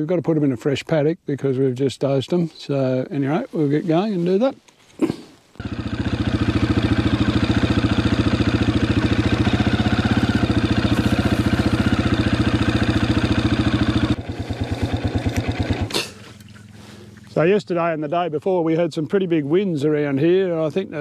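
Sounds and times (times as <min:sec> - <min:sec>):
motorbike engine pulsing: 0:05.6 - 0:17.4.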